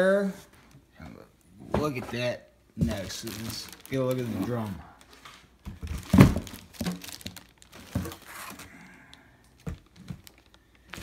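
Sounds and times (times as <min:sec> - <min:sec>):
plastic crinkling: 0:02.8 - 0:11.0
box knocks and thumps: 0:05.6 - 0:07.2.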